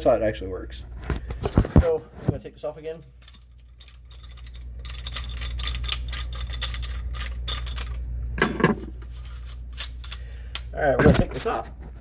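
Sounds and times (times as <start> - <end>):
steady low hum: 0.0 - 12.0
small metal parts clinking: 3.1 - 8.0, 9.4 - 10.6.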